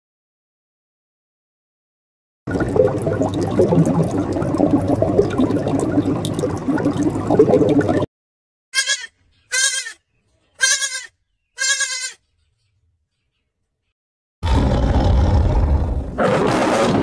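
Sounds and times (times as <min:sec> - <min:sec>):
short bleats: 0:08.7 - 0:10.0, 0:10.6 - 0:12.2.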